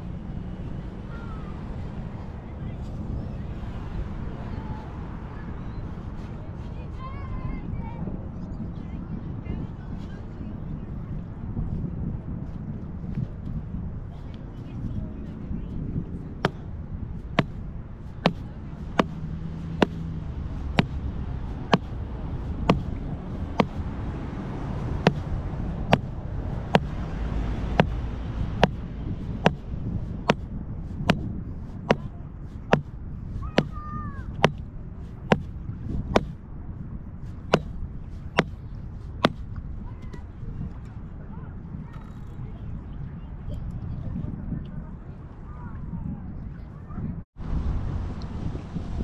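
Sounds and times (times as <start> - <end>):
low wind rumble: 0.0 - 49.0
mallet knocking on plastic pipe: 28.6 - 28.8.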